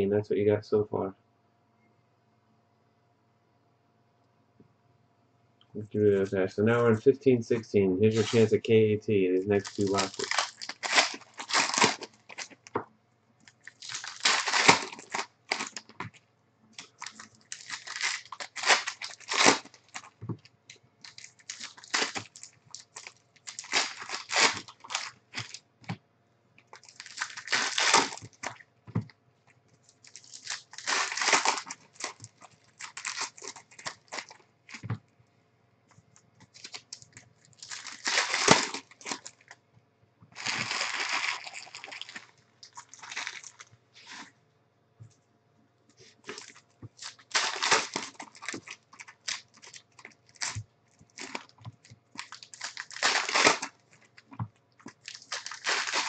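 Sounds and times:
foil wrappers tearing and crinkling: 0:08.1 - 0:08.5, 0:09.5 - 0:12.7, 0:13.5 - 0:16.1, 0:16.8 - 0:20.2, 0:21.0 - 0:25.6, 0:26.7 - 0:28.6, 0:30.0 - 0:34.8, 0:36.5 - 0:39.6, 0:40.4 - 0:44.3, 0:46.2 - 0:56.0.

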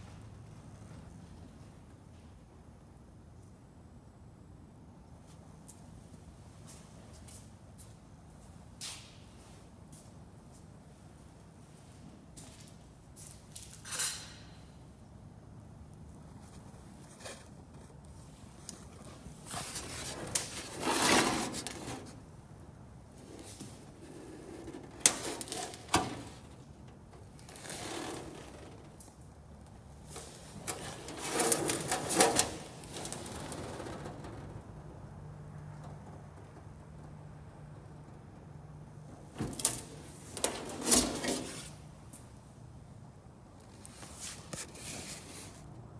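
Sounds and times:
scraping rustle: 0:16.4 - 0:22.2, 0:23.2 - 0:26.6, 0:27.2 - 0:29.1, 0:30.1 - 0:34.6, 0:39.4 - 0:41.8, 0:43.7 - 0:45.7.

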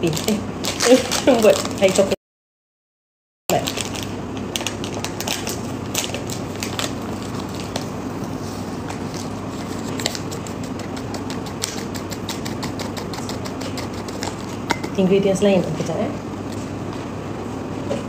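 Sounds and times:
packaging crinkling: 0:00.0 - 0:02.2, 0:03.5 - 0:08.0
room noise: 0:03.5 - 0:18.0.

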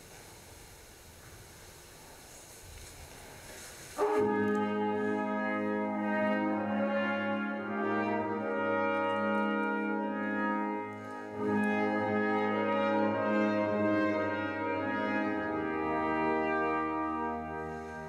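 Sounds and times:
brass ensemble playing chords: 0:04.0 - 0:18.0.

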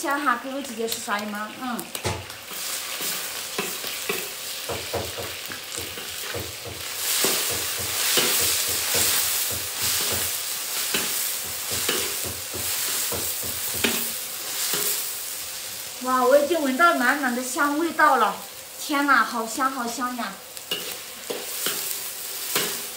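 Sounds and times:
food sizzling in a wok: 0:00.0 - 0:22.9
spatula scraping a pan: 0:02.5 - 0:15.8, 0:20.6 - 0:22.9.

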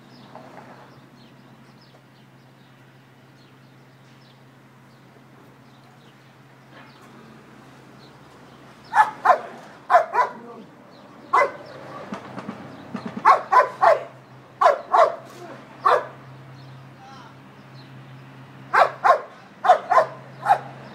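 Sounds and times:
dog barking: 0:08.9 - 0:10.5, 0:11.3 - 0:11.8, 0:13.2 - 0:16.2, 0:18.7 - 0:20.8.

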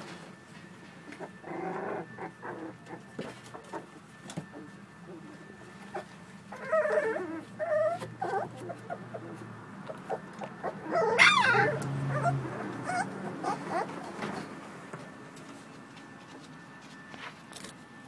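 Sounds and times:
puppies whining: 0:01.0 - 0:15.0.

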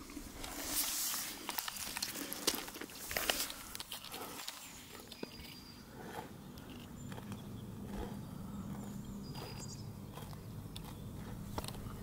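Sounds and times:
cattle tearing grass: 0:00.0 - 0:05.4, 0:07.0 - 0:12.0.

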